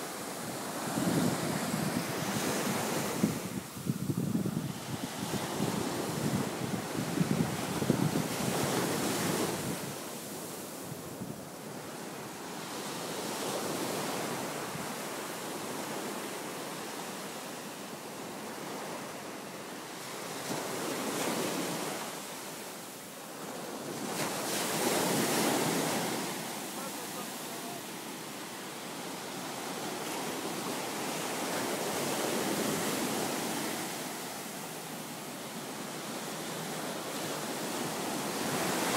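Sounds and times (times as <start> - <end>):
ocean surf washing onto beach: 0.0 - 38.9
wind buffeting microphone: 0.5 - 10.1.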